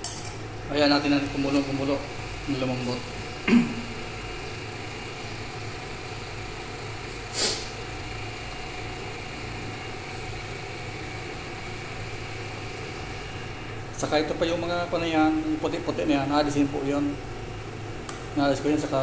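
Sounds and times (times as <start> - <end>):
low mechanical hum: 0.0 - 19.0
short sharp hiss: 7.1 - 7.8.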